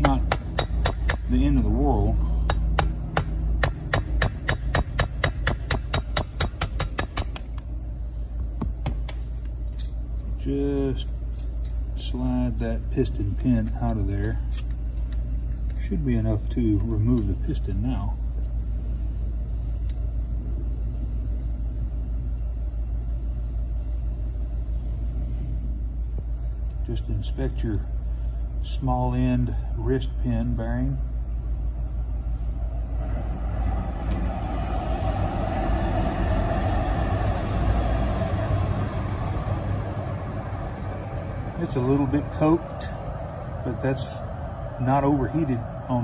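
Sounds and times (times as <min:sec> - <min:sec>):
small hammer tapping metal punch: 0:00.0 - 0:01.3
low rumble: 0:31.6 - 0:46.0.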